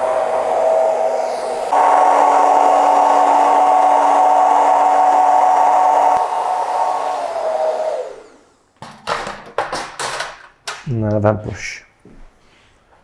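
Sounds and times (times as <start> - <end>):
hair dryer running: 0.0 - 8.7.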